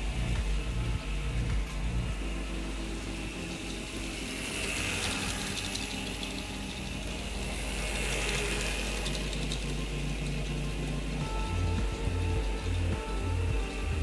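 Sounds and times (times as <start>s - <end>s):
toy tram motor whirring: 2.5s - 13.4s.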